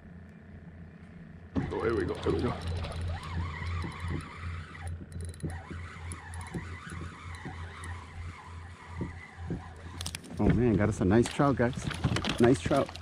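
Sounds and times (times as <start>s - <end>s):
fishing reel whirring: 1.7s - 10.3s.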